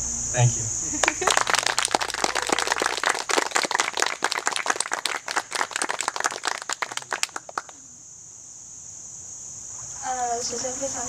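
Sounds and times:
crowd applause: 0:00.9 - 0:07.8.

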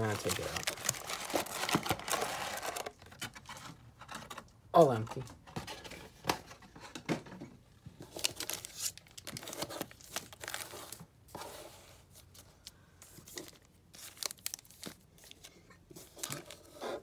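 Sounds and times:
foil wrappers crinkling: 0:00.0 - 0:03.1, 0:08.1 - 0:11.0, 0:12.6 - 0:16.8.

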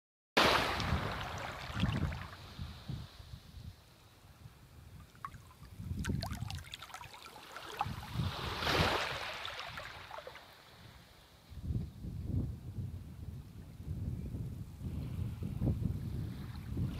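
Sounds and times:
water lapping on sand: 0:00.4 - 0:02.9, 0:05.0 - 0:10.8
water trickling and gurgling: 0:01.1 - 0:02.4, 0:05.0 - 0:10.4.

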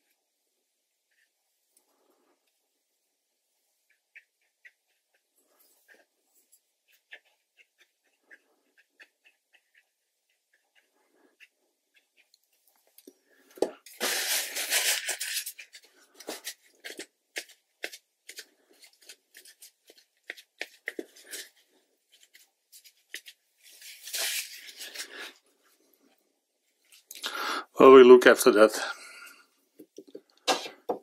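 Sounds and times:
paper crinkling and rustling: 0:13.9 - 0:20.1, 0:20.7 - 0:25.3.

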